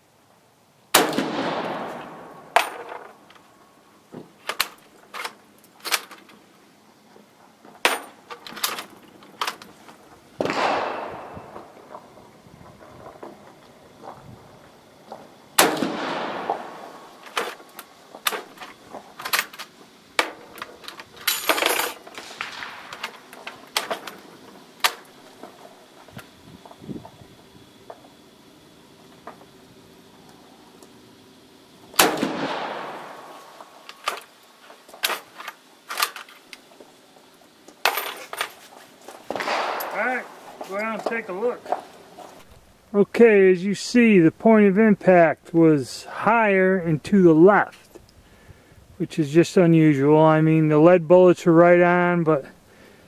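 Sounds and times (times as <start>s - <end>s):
rifle shots with echo: 0.9s - 2.9s, 10.4s - 12.0s, 15.6s - 17.4s, 22.2s - 23.3s, 32.0s - 33.8s, 39.3s - 40.6s
smaller reports: 39.9s - 41.8s, 42.9s - 47.8s, 49.0s - 52.5s.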